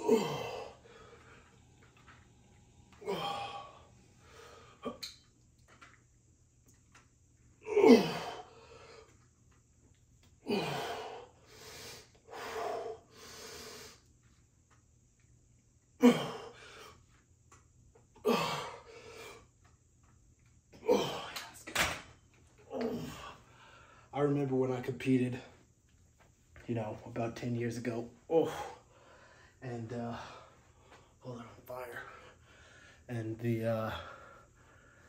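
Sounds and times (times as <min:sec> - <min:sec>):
man grunting with effort: 0:00.0 - 0:00.8, 0:03.0 - 0:03.8, 0:07.6 - 0:08.4, 0:18.2 - 0:18.7, 0:20.8 - 0:21.4, 0:22.7 - 0:23.3
man breathing heavily: 0:00.0 - 0:02.2, 0:02.9 - 0:04.9, 0:10.4 - 0:14.1, 0:18.2 - 0:19.5, 0:22.9 - 0:24.1, 0:28.3 - 0:33.1, 0:33.8 - 0:35.0.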